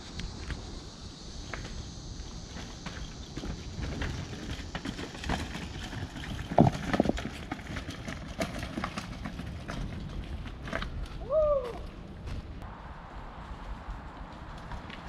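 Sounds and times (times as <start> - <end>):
bike clunking and rattling on rocks: 2.5 - 11.2.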